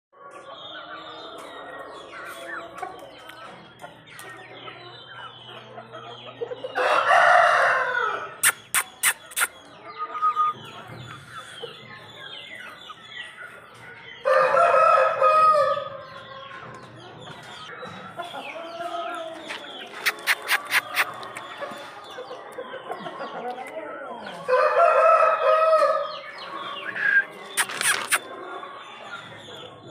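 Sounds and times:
chicks peeping and clucking: 0:00.2 - 0:29.9
loud drawn-out chicken calls: 0:06.5 - 0:12.7, 0:14.2 - 0:16.7, 0:17.5 - 0:29.1
sharp clicks: 0:20.0 - 0:21.4, 0:27.6 - 0:28.2.

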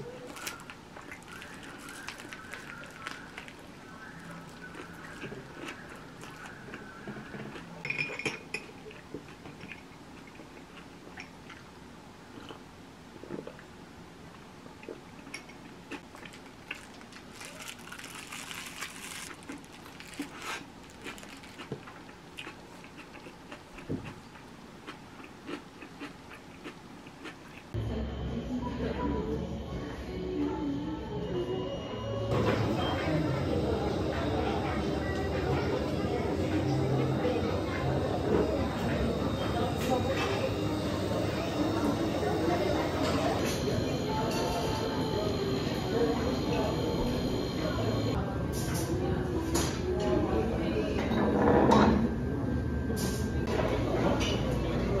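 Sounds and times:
chewing with small crunches: 0:00.0 - 0:07.9, 0:08.6 - 0:13.7, 0:14.3 - 0:27.8
wrapper crinkling: 0:00.2 - 0:05.3, 0:16.2 - 0:22.0.

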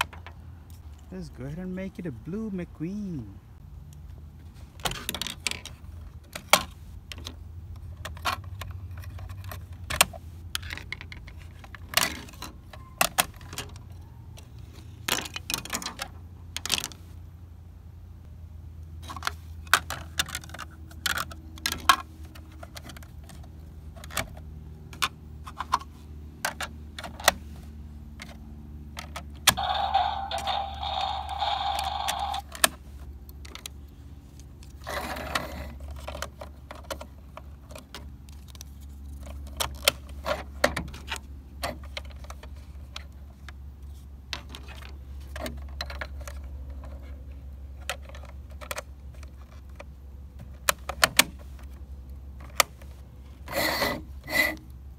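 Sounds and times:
plastic toy panels clicking: 0:19.0 - 0:27.4, 0:29.0 - 0:33.8
steady higher sound: 0:29.6 - 0:32.4.

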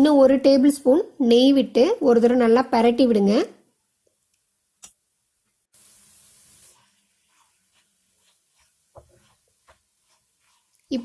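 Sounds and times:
ghee sizzling: 0:05.7 - 0:11.0
wooden spatula scraping a pan: 0:06.3 - 0:11.0.

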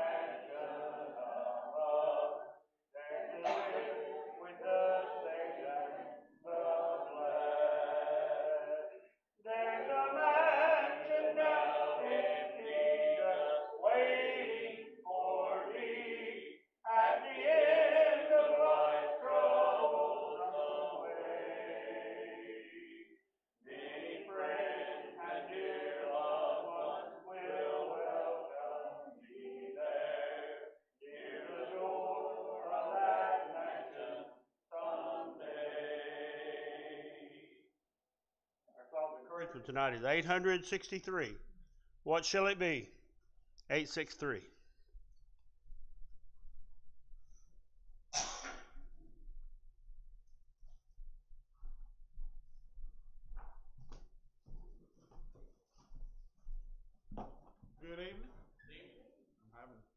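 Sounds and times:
congregation singing a hymn: 0:00.0 - 0:37.7.

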